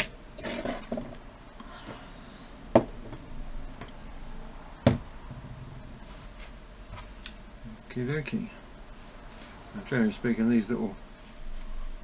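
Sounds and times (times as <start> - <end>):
sharp knocks on workbench: 4.8 - 5.1.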